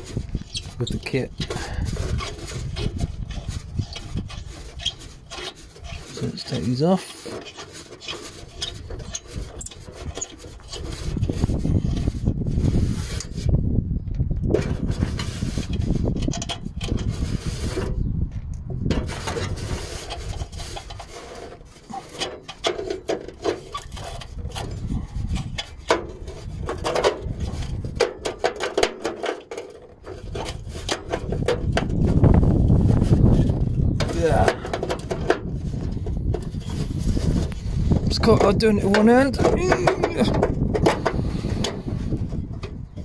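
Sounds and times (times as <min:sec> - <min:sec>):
rusty nut scraping on stud: 0:00.0 - 0:13.5, 0:14.5 - 0:18.1, 0:18.8 - 0:43.0
short metal squeaks: 0:00.3 - 0:12.1, 0:19.1 - 0:25.9.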